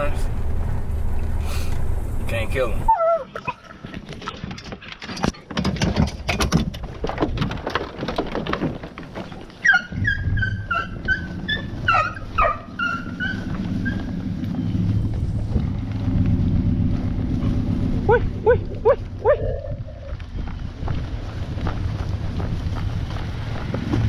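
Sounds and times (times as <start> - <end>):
low hum: 0.0 - 2.9, 9.9 - 24.0
hounds yelping: 2.9 - 3.7, 9.6 - 14.6, 18.0 - 20.2
sharp clatters and knocks: 3.8 - 9.7.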